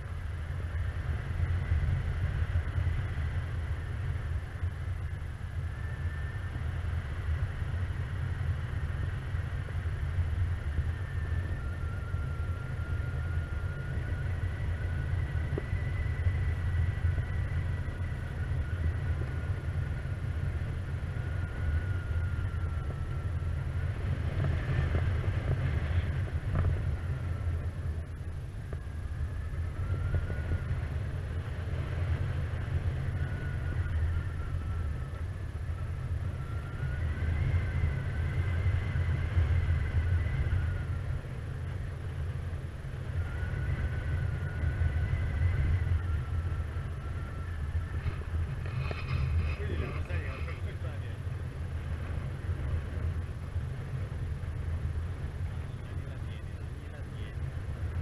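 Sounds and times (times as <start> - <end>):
wind rumbling on microphone: 0.0 - 58.0
faint high whistle: 10.7 - 19.7, 33.0 - 41.1, 43.1 - 51.2.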